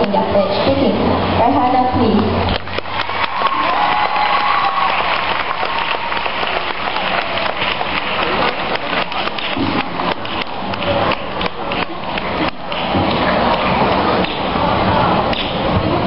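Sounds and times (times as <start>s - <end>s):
audience applauding: 2.6s - 11.3s.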